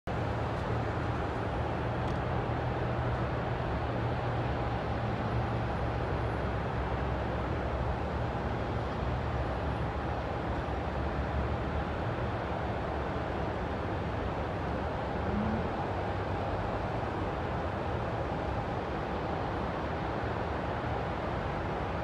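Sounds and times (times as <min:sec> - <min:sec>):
low traffic rumble: 0:00.1 - 0:22.0.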